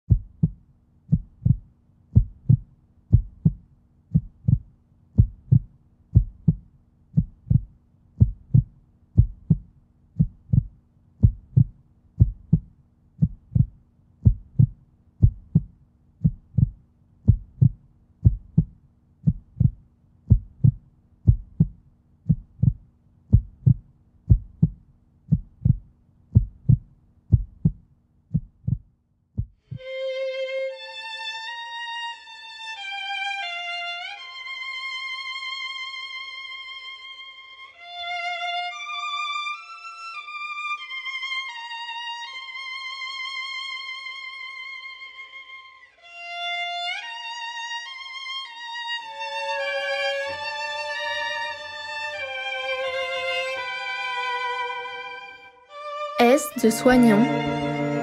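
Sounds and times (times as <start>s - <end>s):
heartbeat double thump: 0.0s - 29.8s.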